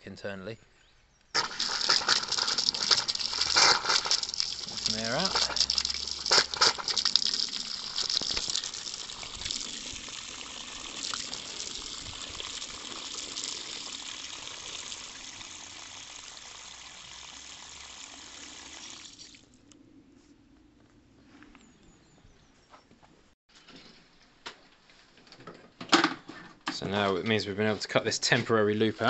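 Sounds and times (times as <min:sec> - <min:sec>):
air spitting from tap: 0:01.4 - 0:19.4
tap running water splashing: 0:01.4 - 0:19.4.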